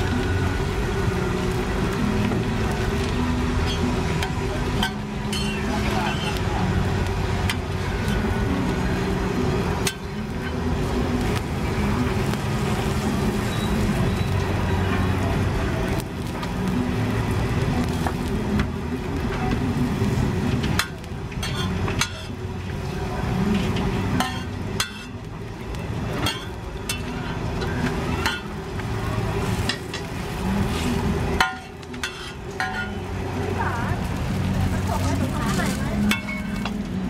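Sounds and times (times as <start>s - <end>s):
flatbread frying on griddle: 0.0s - 37.0s
metal spatula tapping and scraping: 20.7s - 22.4s, 23.6s - 25.2s, 31.4s - 33.0s.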